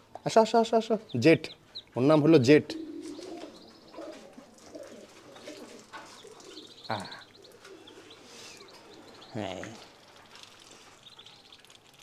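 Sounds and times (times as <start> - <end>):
bird chirping call: 0.9 - 10.0
pigeons cooing: 2.4 - 10.0.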